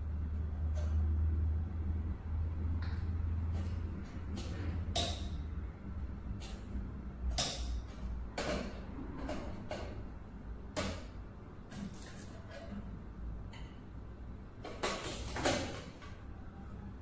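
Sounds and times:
steady low hum: 0:00.0 - 0:11.7.

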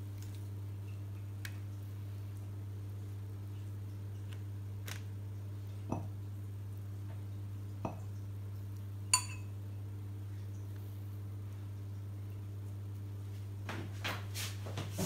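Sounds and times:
steady low hum: 0:00.0 - 0:15.0
dishware clinking: 0:09.2 - 0:09.5.

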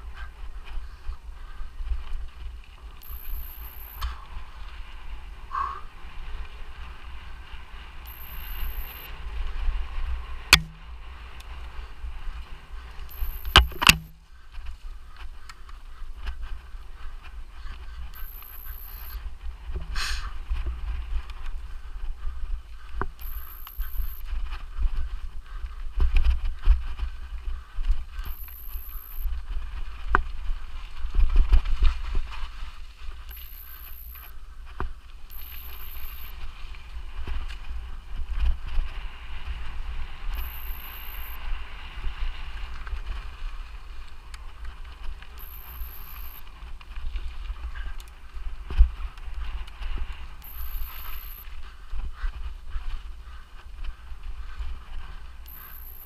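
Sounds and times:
wind rumble on microphone: 0:00.0 - 0:18.2, 0:19.1 - 0:55.5
bike tyres on dirt: 0:00.0 - 0:56.0
short high-pitched tones: 0:03.0 - 0:04.2, 0:08.1 - 0:09.1, 0:10.5 - 0:10.8, 0:13.1 - 0:14.2, 0:18.2 - 0:19.2, 0:23.2 - 0:24.3, 0:28.2 - 0:29.3, 0:33.3 - 0:34.3, 0:35.3 - 0:36.4, 0:40.3 - 0:41.4, 0:45.4 - 0:46.4, 0:50.4 - 0:51.5, 0:55.5 - 0:56.0
bike knocking and rattling: 0:13.1 - 0:16.5.

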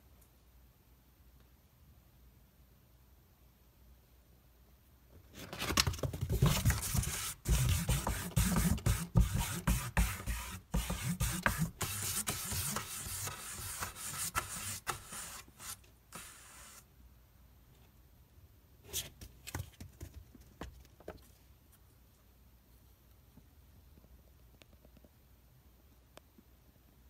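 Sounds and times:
claws scratching cardboard: 0:05.4 - 0:16.9.

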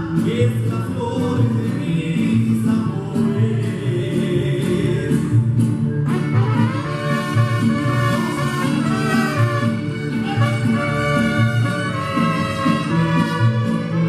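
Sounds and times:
guitars: 0:00.0 - 0:14.0
trumpets: 0:06.1 - 0:14.0
violins: 0:06.1 - 0:14.0.

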